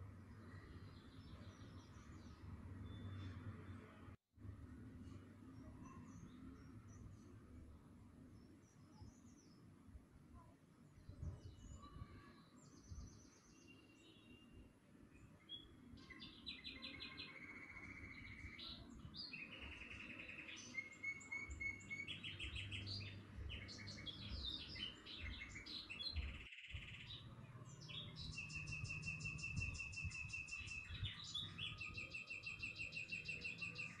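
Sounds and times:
birds chirping and singing: 15.4s - 34.0s.

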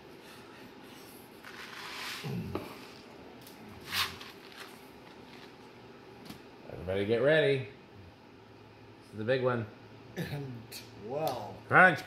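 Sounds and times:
ceiling fan running: 0.0s - 12.0s.

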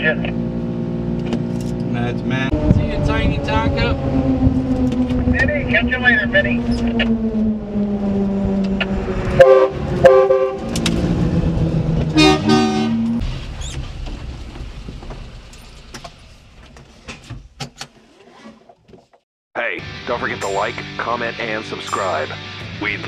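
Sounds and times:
truck horn honking: 9.1s - 10.8s, 12.1s - 13.2s.

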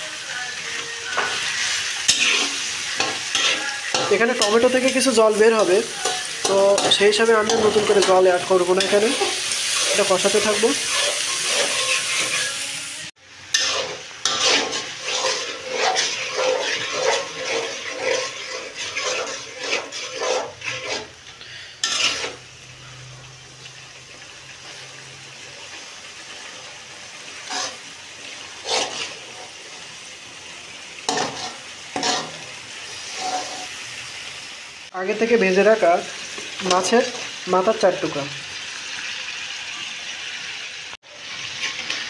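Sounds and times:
food sizzling in oil: 0.0s - 42.0s
metal spatula scraping pan: 0.7s - 12.6s, 13.5s - 23.1s, 27.3s - 27.9s, 28.5s - 29.8s, 31.1s - 33.8s.

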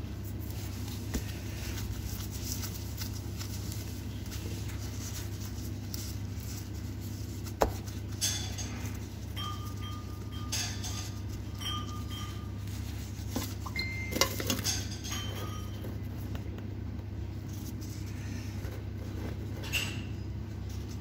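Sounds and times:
equipment humming: 0.0s - 21.0s
kitchen clatter: 7.8s - 16.0s.

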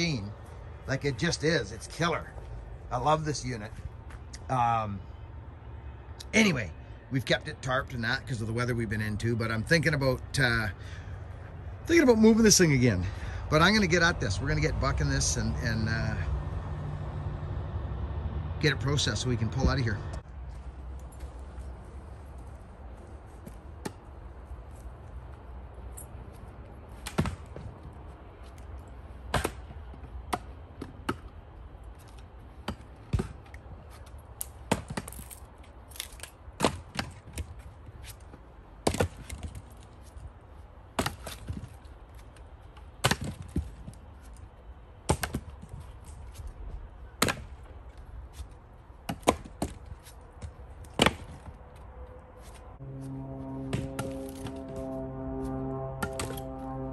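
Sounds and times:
axe chopping wood: 27.0s - 27.6s, 29.3s - 31.3s, 34.6s - 35.2s, 36.6s - 37.4s, 38.8s - 39.6s, 41.0s - 41.6s, 43.0s - 43.7s, 45.1s - 45.6s, 47.2s - 47.6s, 49.0s - 49.9s, 50.8s - 51.6s
low steady rumble: 50.2s - 56.9s.

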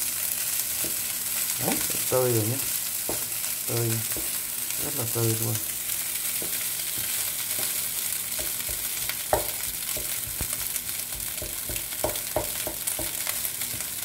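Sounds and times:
fried rice sizzling in a pan: 0.0s - 14.0s
spatula knocking against pan: 3.0s - 3.4s, 6.4s - 13.2s.

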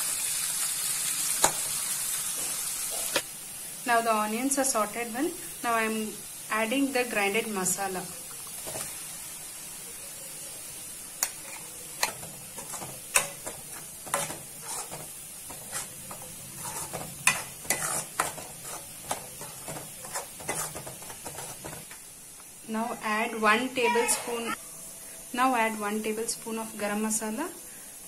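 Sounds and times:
food sizzling in oil: 0.0s - 28.0s
ladle scraping and knocking pan: 11.2s - 22.0s.

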